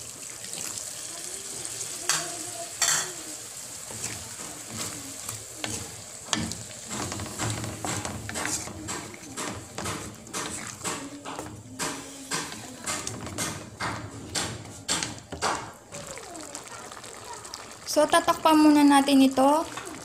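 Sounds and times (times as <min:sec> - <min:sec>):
water sizzling in a wok: 0:00.0 - 0:20.0
spatula scraping a wok: 0:02.8 - 0:15.4.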